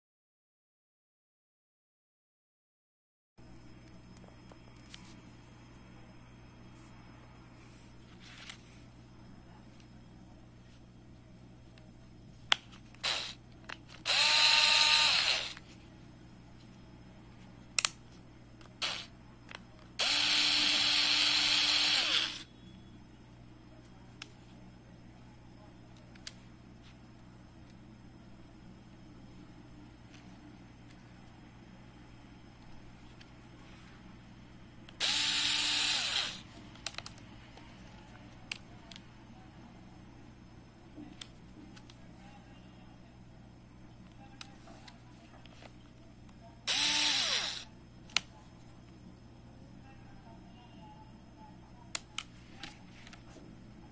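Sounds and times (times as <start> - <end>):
electric screwdriver motor whining: 13.0 - 13.4, 14.0 - 15.6, 18.8 - 19.1, 20.0 - 22.4, 35.0 - 36.4, 46.7 - 47.6.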